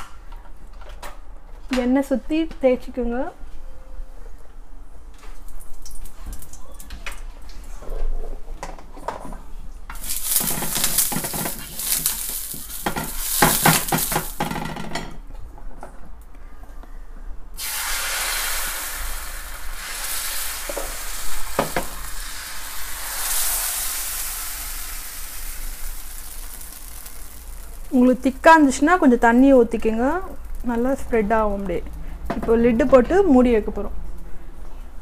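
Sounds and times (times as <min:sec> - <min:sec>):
batter sizzling in pan: 0:10.0 - 0:14.6, 0:17.6 - 0:32.1
frying pan sizzling: 0:10.0 - 0:14.8, 0:17.6 - 0:32.8.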